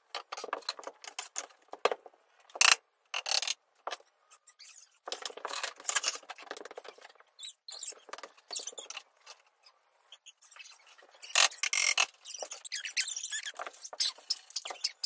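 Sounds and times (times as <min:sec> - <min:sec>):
wooden parts clattering and scraping: 0:00.1 - 0:02.6.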